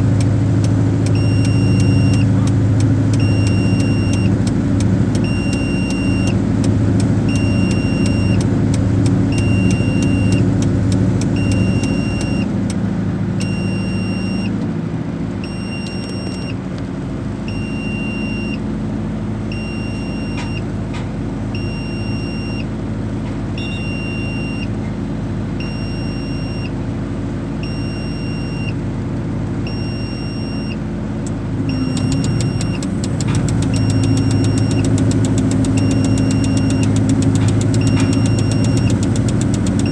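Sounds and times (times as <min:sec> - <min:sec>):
diesel crane engine running: 0:00.0 - 0:39.9
electronic warning beep: 0:01.1 - 0:02.3, 0:03.2 - 0:04.4, 0:05.2 - 0:06.4, 0:07.3 - 0:08.4, 0:09.3 - 0:10.5, 0:11.4 - 0:12.5, 0:13.4 - 0:14.6, 0:15.4 - 0:16.6, 0:17.5 - 0:18.6, 0:19.5 - 0:20.6, 0:21.6 - 0:22.7, 0:23.6 - 0:24.7, 0:25.6 - 0:26.7, 0:27.6 - 0:28.8, 0:29.7 - 0:30.8, 0:31.7 - 0:32.8, 0:33.7 - 0:39.1.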